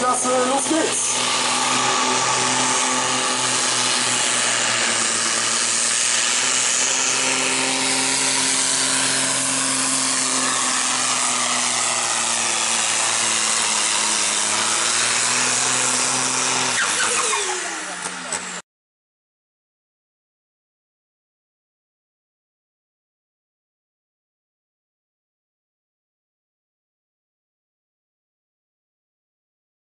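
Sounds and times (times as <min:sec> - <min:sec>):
tractor diesel engine at full throttle: 0:00.0 - 0:18.6.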